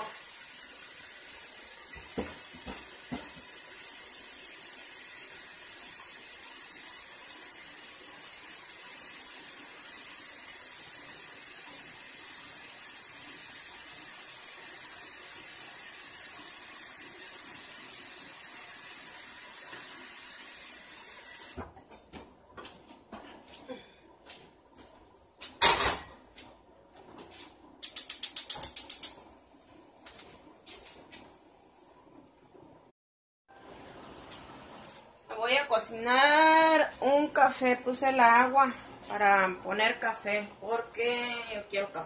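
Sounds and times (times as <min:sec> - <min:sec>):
faucet running water into sink: 0:00.0 - 0:21.6.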